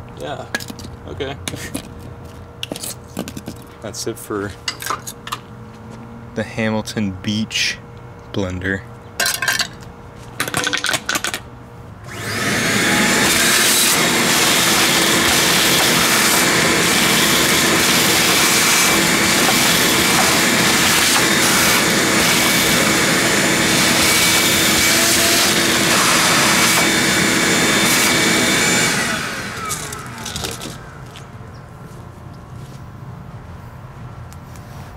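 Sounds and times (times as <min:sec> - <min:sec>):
electric motor whining: 0:12.0 - 0:31.3.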